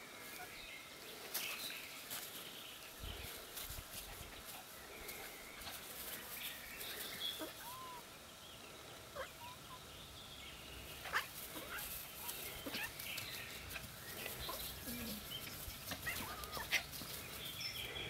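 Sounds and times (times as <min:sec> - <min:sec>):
faint animal calls: 0:07.0 - 0:08.2, 0:09.0 - 0:09.9, 0:11.0 - 0:18.0.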